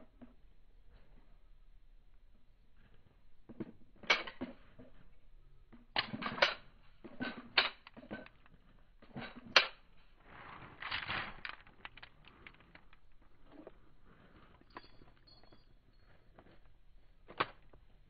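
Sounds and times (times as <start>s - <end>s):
clothing rustling: 10.2s - 15.5s.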